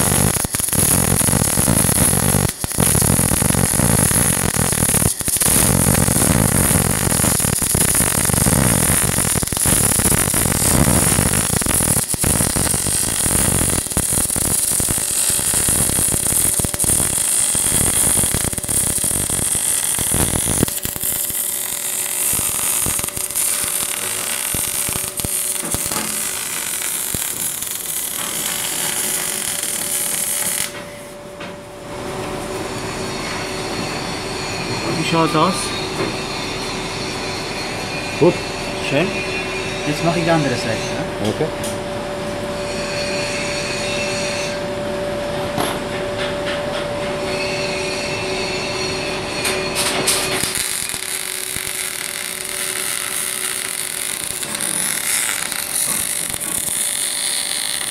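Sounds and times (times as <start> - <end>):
welding arc hissing and crackling: 0.0 - 30.8, 49.8 - 57.9
steady hum: 0.0 - 34.9.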